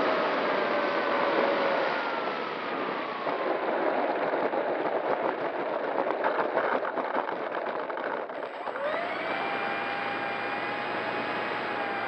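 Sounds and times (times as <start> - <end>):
wheels rattling over asphalt: 0.0 - 12.0
electric motor whine winding down: 8.4 - 12.0.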